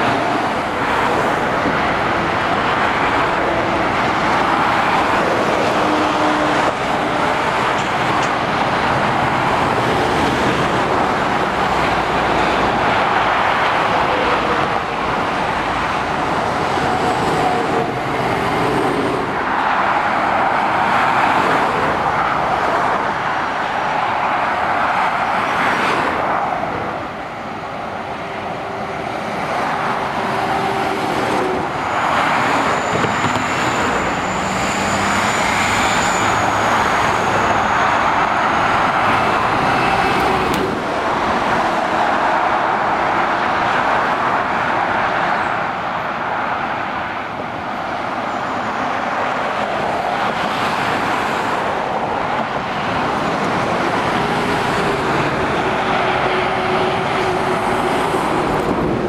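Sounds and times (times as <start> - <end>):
motorway traffic passing: 0.0 - 59.0.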